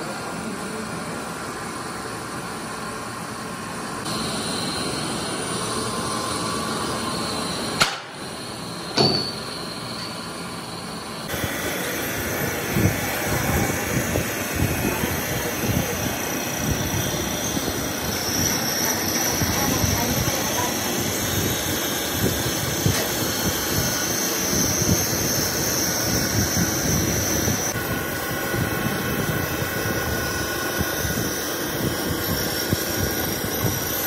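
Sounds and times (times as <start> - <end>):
metal lathe running: 0.1 - 34.0.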